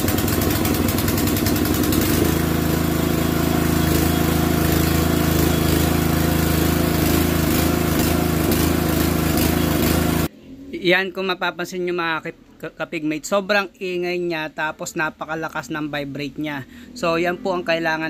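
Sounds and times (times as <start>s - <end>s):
petrol engine driving pump: 0.0s - 10.3s.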